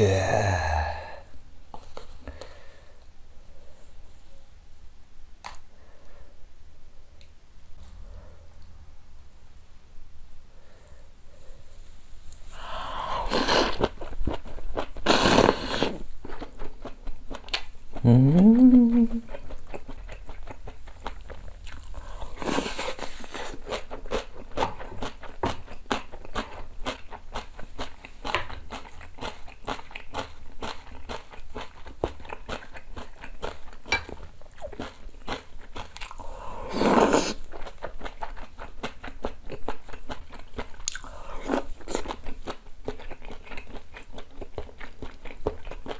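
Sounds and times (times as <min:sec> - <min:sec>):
person humming mm: 0:00.0 - 0:01.3, 0:18.0 - 0:19.4
slurping noodles: 0:13.1 - 0:14.0, 0:15.0 - 0:16.0, 0:36.6 - 0:37.5
wet chewing and lip-smacking: 0:19.0 - 0:22.0, 0:23.0 - 0:36.3, 0:37.4 - 0:45.9.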